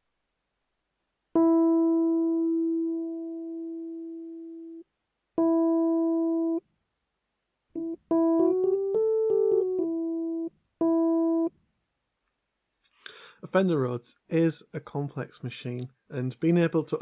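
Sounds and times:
electric piano notes: 1.4s - 4.8s, 7.8s - 11.5s.

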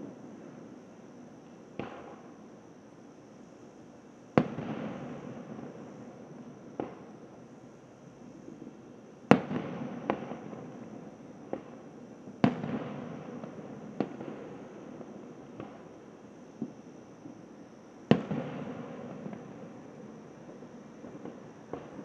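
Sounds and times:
fireworks bursting with echo: 4.4s - 7.2s, 9.3s - 16.8s, 18.1s - 22.0s.

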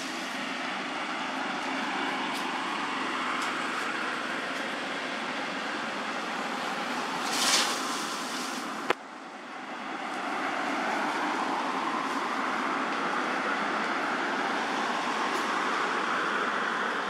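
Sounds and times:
distant traffic hum: 0.0s - 17.0s
brief loud hiss: 7.2s - 8.7s.

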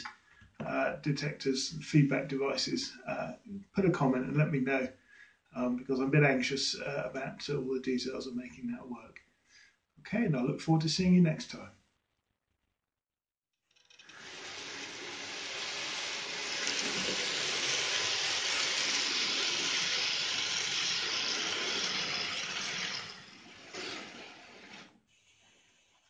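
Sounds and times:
model train wheels and motor whirr: 13.7s - 25.9s.

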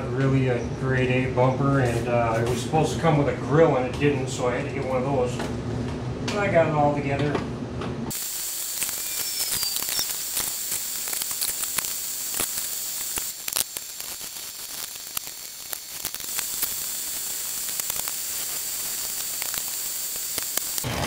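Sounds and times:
steady high hiss: 8.1s - 20.9s.

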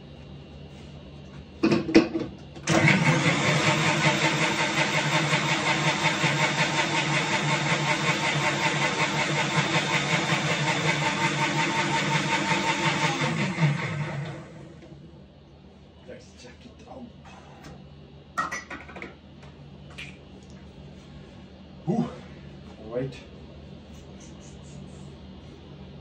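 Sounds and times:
mixer grinder motor running: 2.5s - 15.0s.

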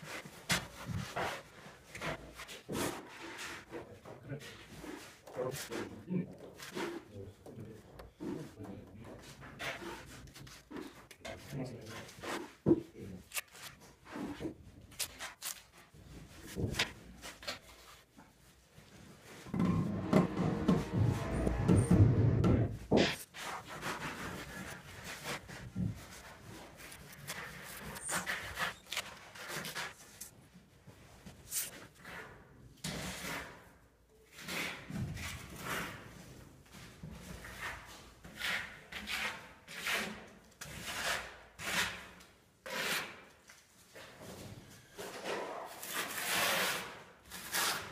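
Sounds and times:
trowel scraping mortar: 26.3s - 30.3s, 37.8s - 43.3s, 45.1s - 47.9s.

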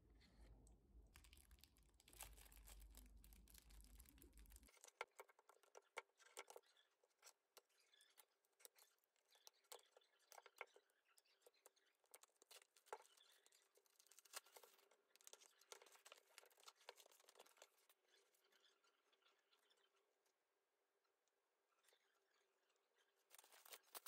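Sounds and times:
paper rustling: 13.8s - 17.8s, 23.3s - 24.0s.

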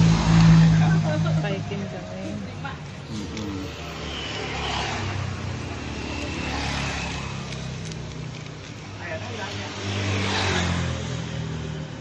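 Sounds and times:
vehicle engine humming: 0.0s - 9.7s
road noise: 0.0s - 12.0s.

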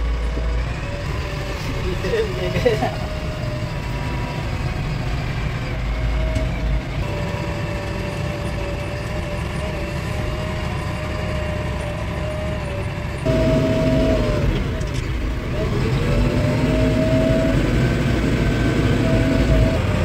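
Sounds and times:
diesel engine rumble with whine: 0.0s - 20.0s.

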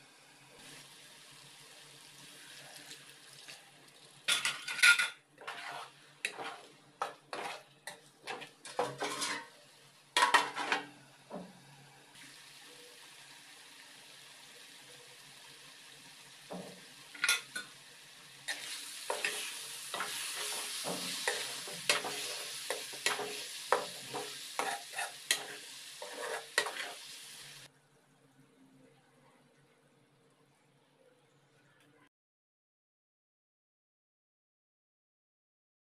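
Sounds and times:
curry sizzling: 0.0s - 27.7s
metal spoon clinking and scraping pan: 4.3s - 9.6s, 10.2s - 10.9s, 17.1s - 17.8s, 18.5s - 27.0s.

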